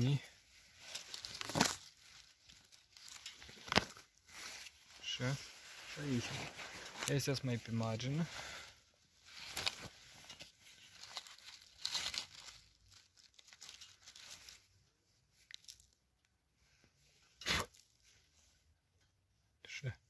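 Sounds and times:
hand rustling grass and leaves: 0.0s - 8.6s, 9.2s - 14.7s
mushroom tearing from ground: 0.8s - 4.1s, 9.4s - 14.3s, 17.4s - 17.9s.

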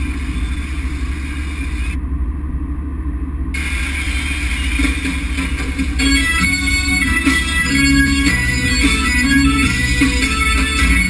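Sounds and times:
car engine and road noise: 0.0s - 11.0s
guitar music: 5.6s - 11.0s.

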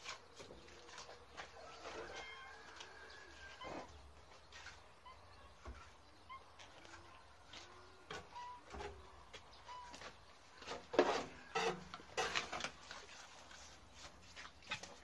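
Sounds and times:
mortar scraping in metal wheelbarrow: 10.6s - 15.0s.

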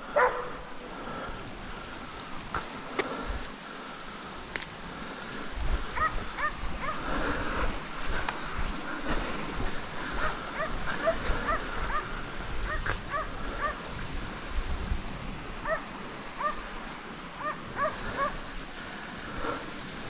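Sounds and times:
dog barking and yelping: 0.1s - 0.6s, 6.0s - 7.0s, 10.6s - 12.1s, 12.7s - 13.7s, 15.6s - 16.6s, 17.4s - 18.4s.

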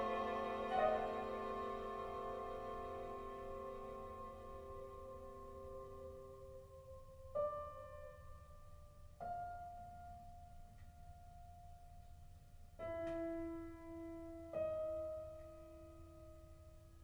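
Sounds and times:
sparse ringing chamber music notes: 0.0s - 7.0s.

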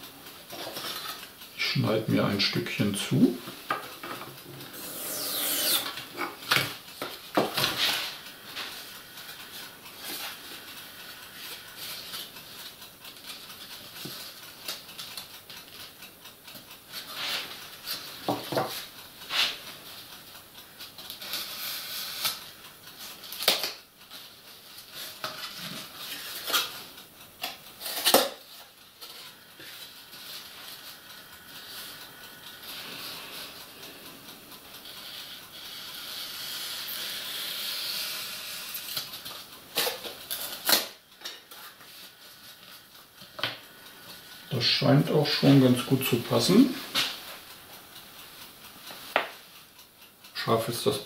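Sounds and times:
foam scraping and squeaking: 4.8s - 6.0s.

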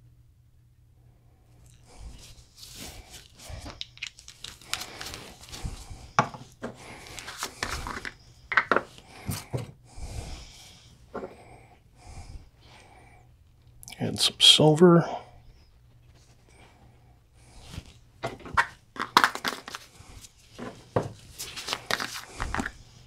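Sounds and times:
plastic bottles clicking and tapping: 7.6s - 8.9s, 18.3s - 19.8s.

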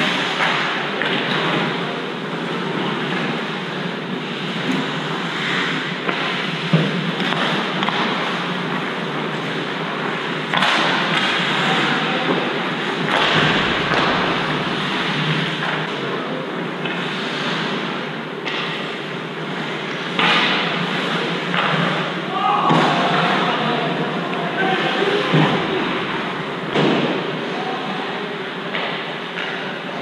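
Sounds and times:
hockey game noise: 0.0s - 30.0s
sharp knock: 13.1s - 15.3s.

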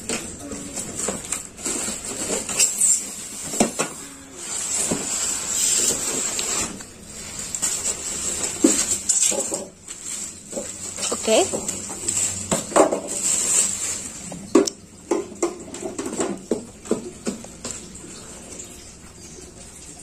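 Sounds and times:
plastic wrap crinkling: 0.0s - 14.7s
styrofoam and cardboard knocking: 0.8s - 6.8s, 7.8s - 17.9s.

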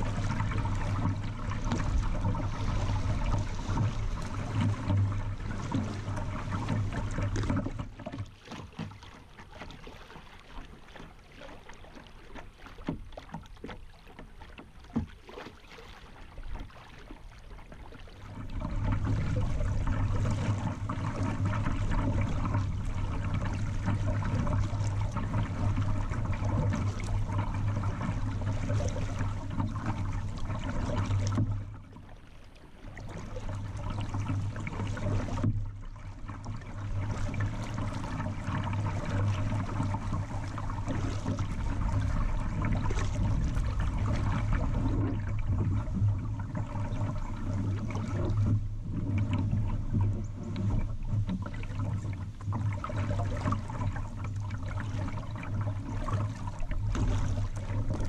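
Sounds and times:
low rumble: 0.0s - 7.5s.

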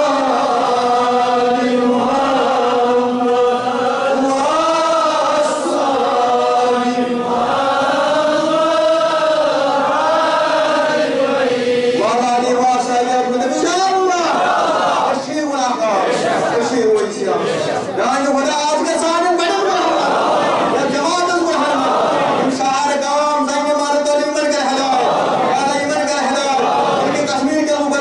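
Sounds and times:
man chanting: 0.0s - 7.2s, 11.9s - 14.5s, 15.1s - 28.0s.

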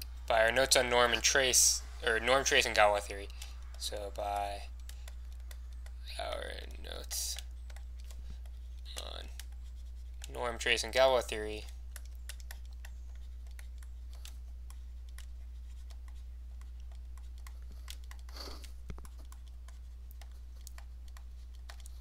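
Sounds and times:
steady low hum: 0.0s - 22.0s
stylus tapping on a tablet: 3.4s - 6.0s, 11.6s - 22.0s.

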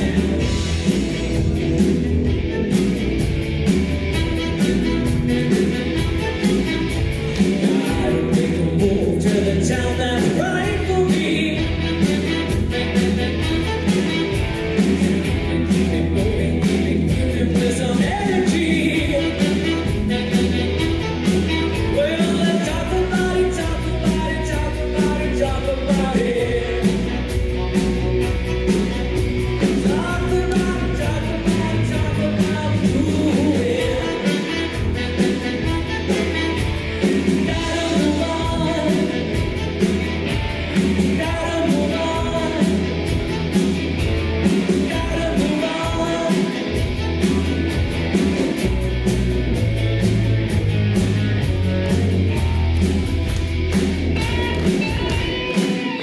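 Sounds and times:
bass guitar: 0.0s - 56.0s
drum kit: 0.0s - 56.0s
electric guitars: 0.0s - 56.0s
woman singing lead: 29.7s - 39.7s.

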